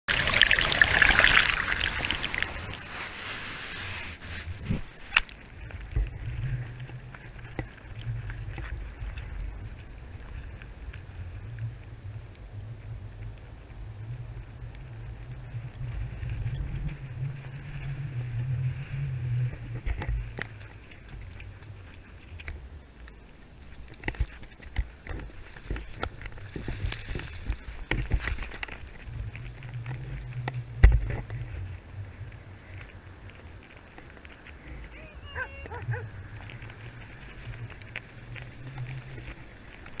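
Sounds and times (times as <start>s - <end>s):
wind rumbling on microphone: 0.0s - 40.0s
ocean surf splashing: 0.1s - 4.5s.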